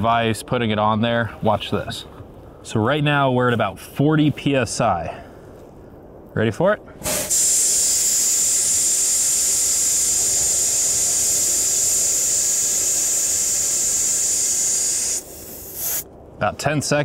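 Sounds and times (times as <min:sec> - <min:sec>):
air hissing out of tyre: 0:07.0 - 0:16.1.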